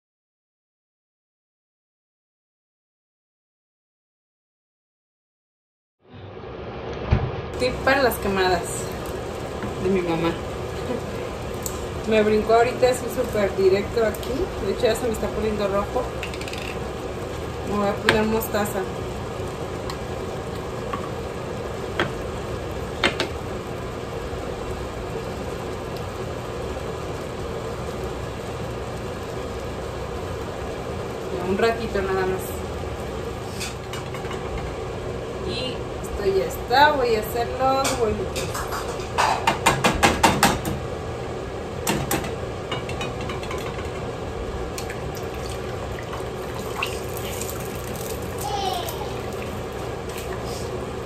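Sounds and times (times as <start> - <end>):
gas stove hum and hiss: 6.2 - 51.0
salsa simmering in a pan: 7.6 - 35.4, 42.4 - 51.0.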